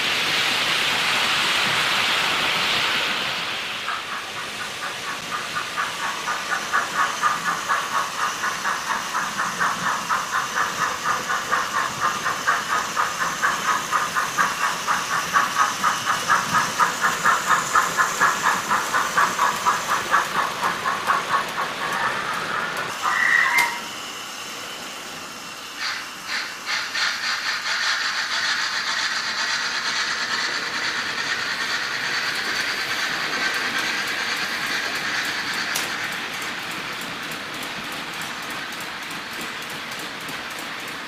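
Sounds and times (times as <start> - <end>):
rail joint ticking: 3.8 - 23.8, 25.9 - 41.0
model train wheels rattling: 3.9 - 23.8, 25.8 - 41.0.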